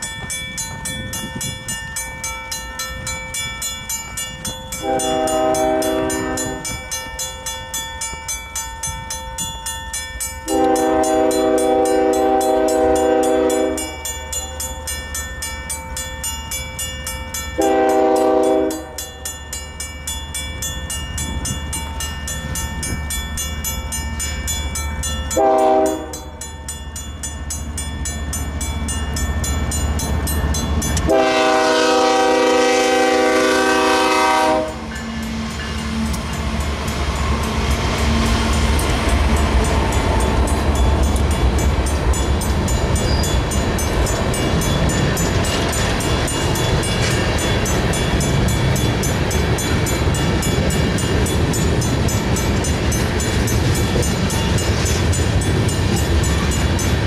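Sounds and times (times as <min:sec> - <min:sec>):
crossing bell ringing: 0:00.0 - 0:57.0
locomotive air horn blasts: 0:04.8 - 0:06.7, 0:10.5 - 0:14.0, 0:17.6 - 0:19.0, 0:25.4 - 0:26.3, 0:31.1 - 0:35.0
locomotive rumble: 0:20.5 - 0:57.0.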